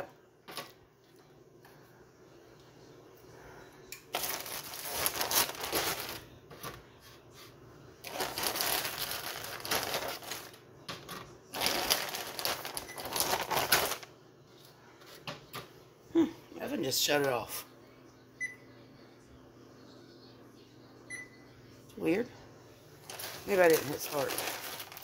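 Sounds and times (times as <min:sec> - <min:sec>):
plastic bag crinkling: 0:04.1 - 0:06.7, 0:08.0 - 0:10.6, 0:11.5 - 0:14.1, 0:23.0 - 0:25.0.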